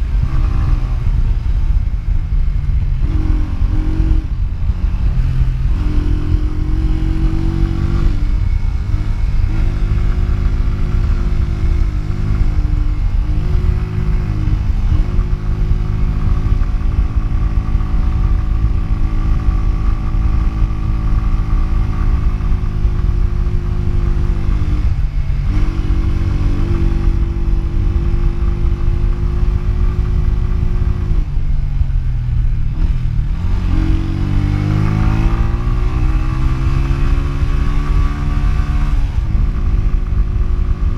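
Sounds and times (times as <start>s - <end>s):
motorcycle engine under throttle: 0.0s - 40.9s
wind rushing over microphone: 0.0s - 40.9s.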